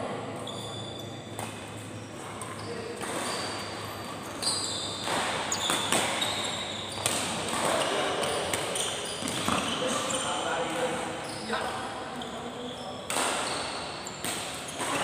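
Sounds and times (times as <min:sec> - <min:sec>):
shoes squeaking on court: 0:00.2 - 0:15.0
racket striking shuttlecock: 0:05.0 - 0:09.5, 0:13.1 - 0:15.0.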